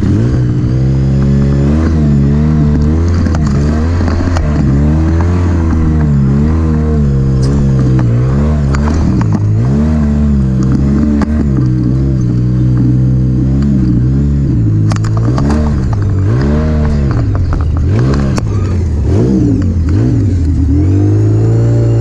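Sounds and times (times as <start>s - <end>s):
atv engine revving under load: 0.0s - 22.0s
gravel crackling under tires: 0.0s - 22.0s.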